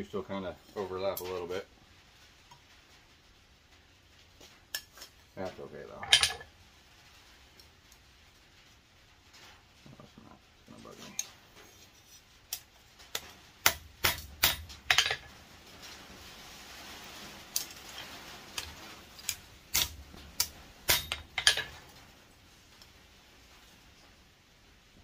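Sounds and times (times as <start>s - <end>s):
hammer tapping tongs on anvil: 19.8s - 21.7s.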